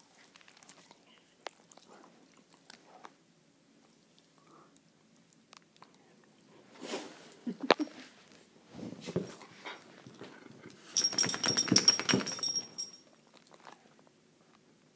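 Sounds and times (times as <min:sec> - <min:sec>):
dog moving about: 0:11.0 - 0:13.0
collar tag jingling: 0:11.0 - 0:13.1.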